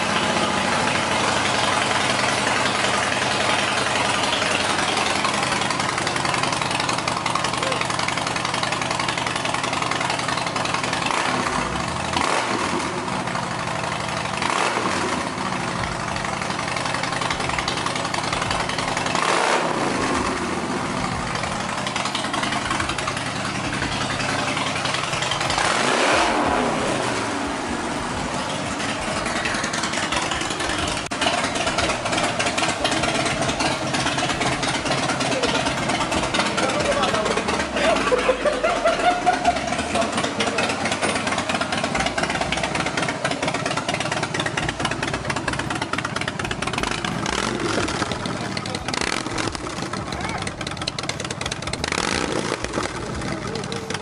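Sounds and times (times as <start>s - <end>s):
motorcycle engine idling: 0.0s - 54.0s
motorcycle throttle blips: 39.0s - 54.0s.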